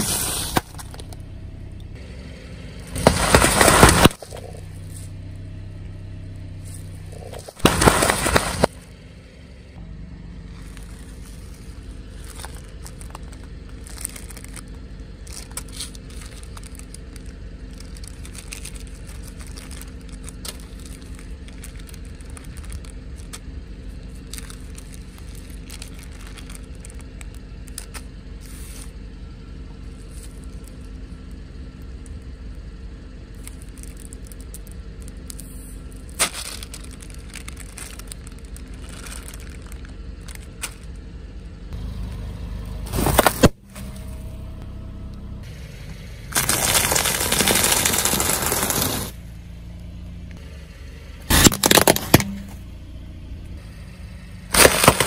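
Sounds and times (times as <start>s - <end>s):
car engine idling: 0.0s - 55.0s
plastic bags crinkling and clicking: 7.2s - 8.8s, 10.6s - 28.0s, 33.4s - 40.9s, 46.3s - 49.1s, 51.3s - 52.4s, 54.6s - 55.0s
balloon bursting with a bang: 51.3s - 52.4s.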